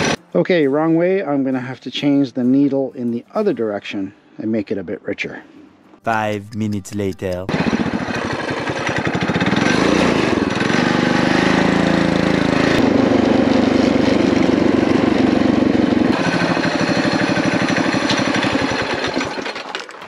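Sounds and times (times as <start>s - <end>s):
mini bike engine running: 8.6s - 19.9s.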